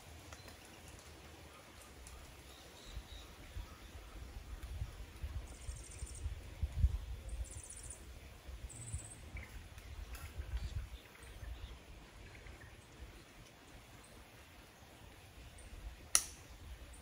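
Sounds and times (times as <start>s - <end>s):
wind rumble on microphone: 2.9s - 13.5s.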